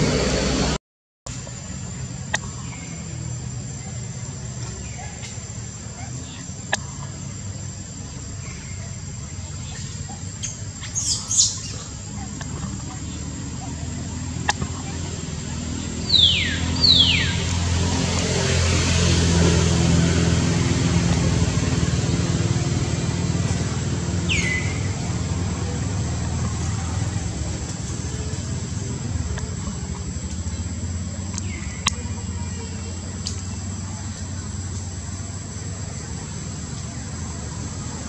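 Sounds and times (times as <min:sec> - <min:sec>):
low rumble of distant traffic: 0:00.0 - 0:38.0.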